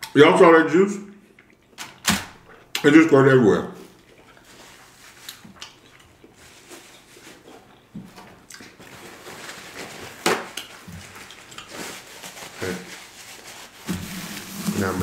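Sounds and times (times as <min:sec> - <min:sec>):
paper towel rustling and tearing: 0:08.8 - 0:15.0.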